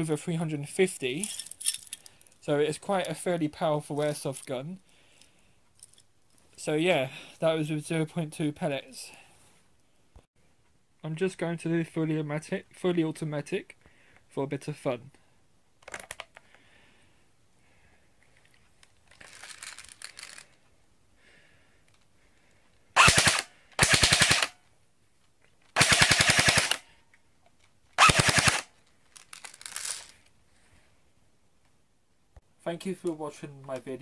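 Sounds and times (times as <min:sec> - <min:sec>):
handling noises: 0:18.2 - 0:20.7
airsoft gun firing on full auto: 0:23.0 - 0:24.6, 0:25.8 - 0:26.8, 0:28.0 - 0:28.7.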